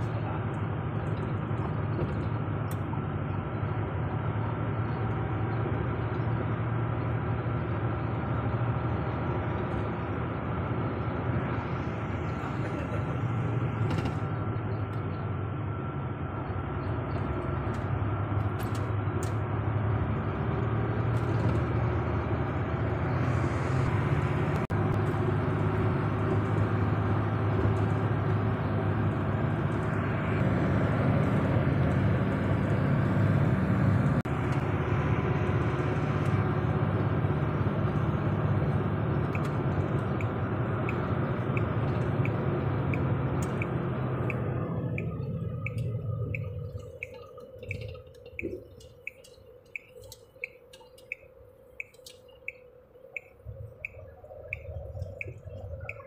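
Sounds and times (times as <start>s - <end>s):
truck engine and road noise: 0.0s - 56.0s.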